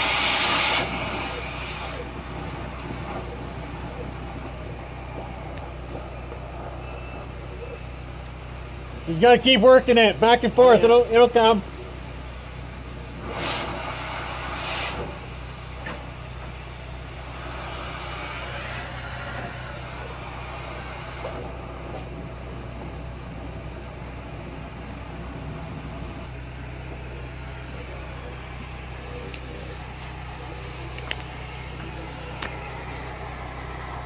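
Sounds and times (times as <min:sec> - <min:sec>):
low mechanical hum: 0:00.0 - 0:34.0
brush scraping inside duct: 0:13.2 - 0:15.2.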